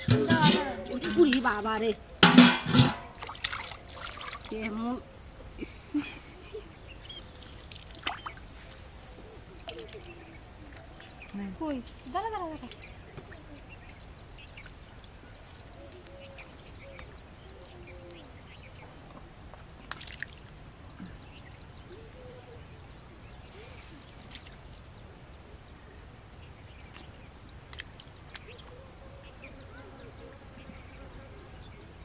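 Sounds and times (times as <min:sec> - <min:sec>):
insect drone: 0:00.0 - 0:32.0
water drips and splashes: 0:00.1 - 0:01.8, 0:02.7 - 0:04.8, 0:07.0 - 0:08.8, 0:09.6 - 0:12.9, 0:19.8 - 0:20.6, 0:24.1 - 0:24.8, 0:26.9 - 0:28.5.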